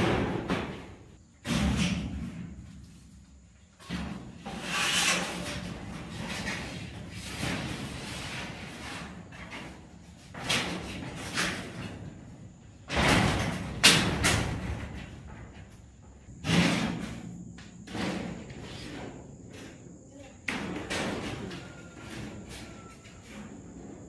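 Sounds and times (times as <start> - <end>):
bangs and knocks: 0.0 - 2.6, 12.9 - 15.6.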